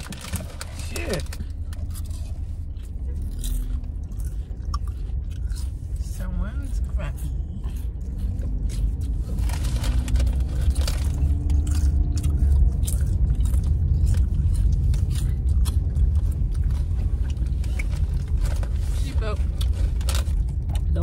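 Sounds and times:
car cabin rumble: 0.0 - 21.0
potato chips crunching: 0.0 - 21.0.

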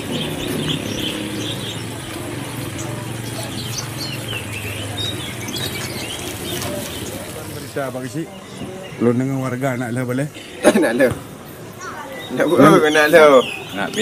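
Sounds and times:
vehicle engine running: 0.0 - 7.7.

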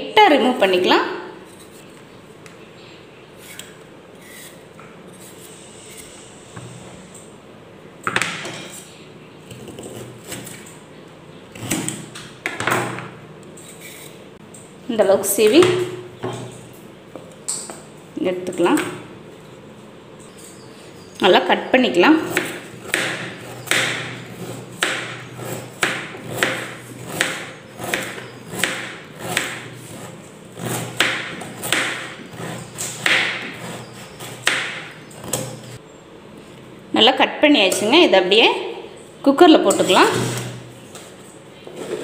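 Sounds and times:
knife chopping carrot on board: 22.3 - 24.2, 24.8 - 25.2, 25.8 - 29.7, 30.6 - 33.7.

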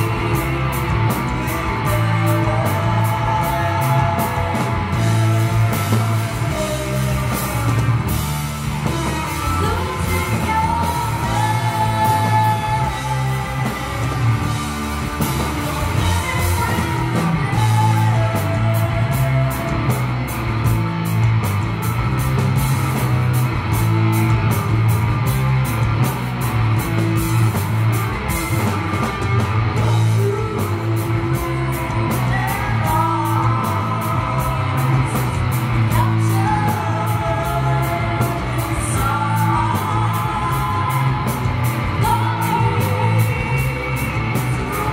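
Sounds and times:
woman singing: 0.0 - 20.1, 29.8 - 44.9
bass guitar: 0.0 - 44.9
distorted electric guitar: 0.0 - 44.9
drums with cymbal hits: 0.0 - 44.9.

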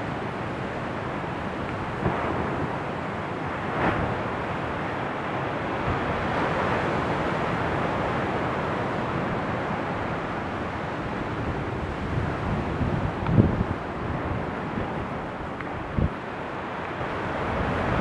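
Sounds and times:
sea surf rushing: 0.0 - 18.0
wind buffeting microphone: 11.0 - 18.0.

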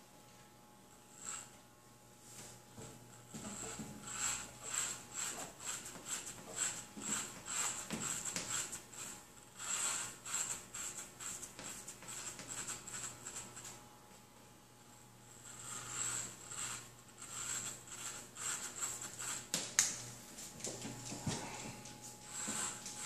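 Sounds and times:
electric hair clippers buzzing: 1.0 - 1.6, 3.1 - 11.4, 15.3 - 20.0, 21.0 - 23.0.

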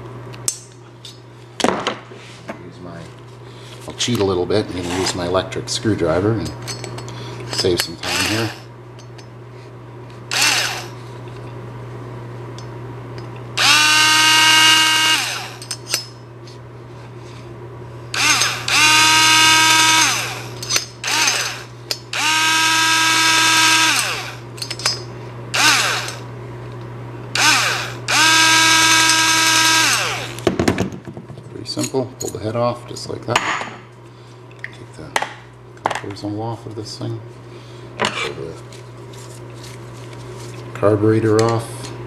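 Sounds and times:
electric screwdriver motor whine: 8.0 - 8.6, 10.3 - 10.9, 13.6 - 15.6, 18.2 - 24.4, 25.6 - 26.2, 27.4 - 30.4.

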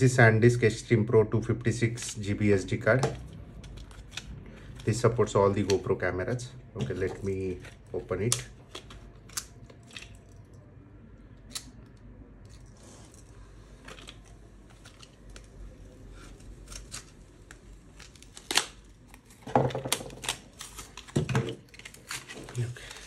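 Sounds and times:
plastic packaging being torn open: 3.2 - 5.8, 11.4 - 23.0
plastic cracking: 7.6 - 10.6, 13.8 - 23.0.

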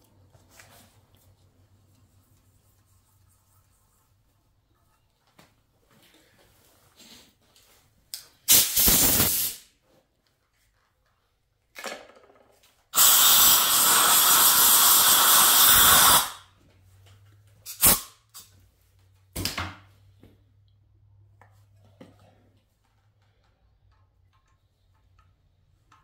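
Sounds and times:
compressed air blow gun blasting: 8.5 - 9.6, 13.0 - 16.4, 17.7 - 18.1.

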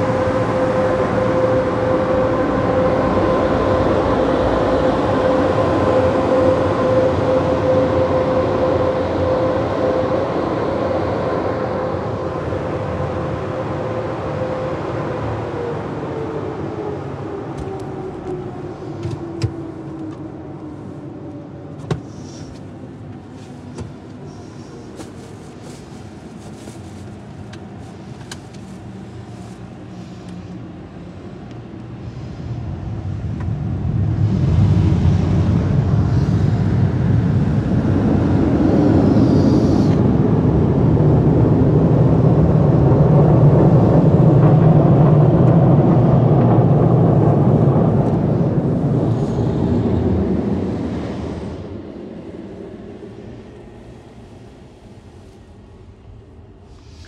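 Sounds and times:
blower whine winding down: 0.0 - 22.5, 32.4 - 56.2
car driving low rumble: 15.0 - 57.0.

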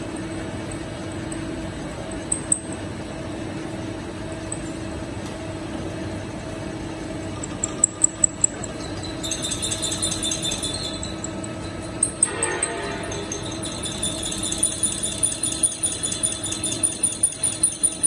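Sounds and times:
boring mill humming: 0.0 - 18.0
metallic cutting rattle: 7.3 - 18.0.

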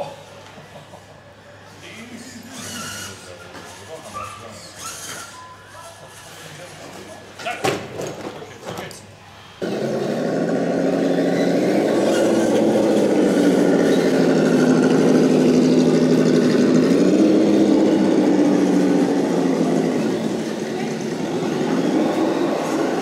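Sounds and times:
rc crawler truck motor drone: 2.4 - 4.0, 9.5 - 23.0.

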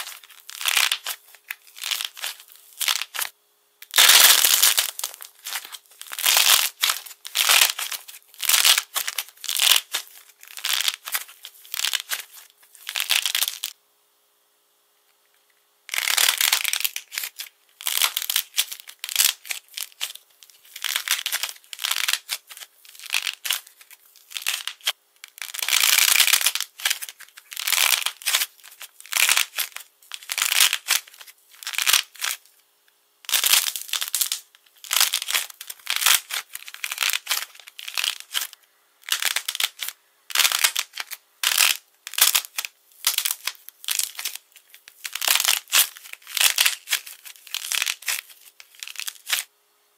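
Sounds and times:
coating cracking on clay: 0.0 - 13.7, 15.9 - 32.4, 33.3 - 49.5.

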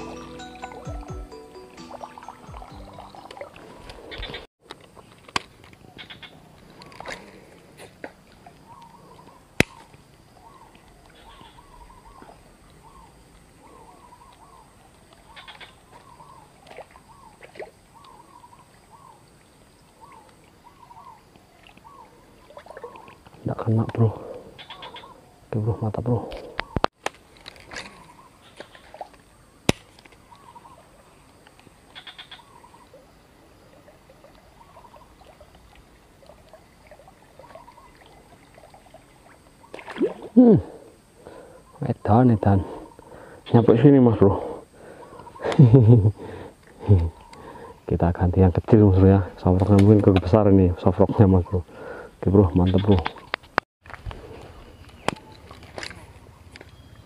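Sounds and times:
bird calling in arched notes: 0.0 - 4.5, 5.8 - 7.1, 8.5 - 23.2, 24.5 - 26.9, 27.8 - 29.6, 30.2 - 31.2, 31.9 - 33.0, 37.4 - 38.2.

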